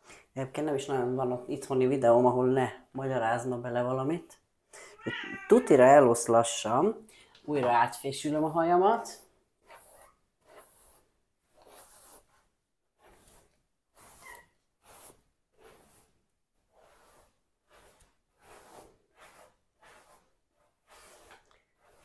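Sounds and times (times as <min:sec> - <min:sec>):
hairbrush swishing through hair: 0:13.0 - 0:22.0.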